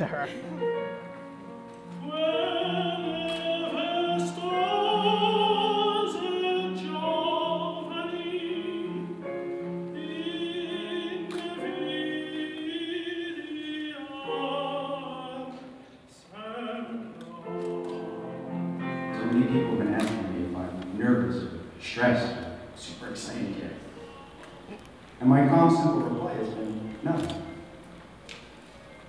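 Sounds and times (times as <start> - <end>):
operatic singing: 1.8 - 27.6
sustained accompanying notes: 17.4 - 29.0.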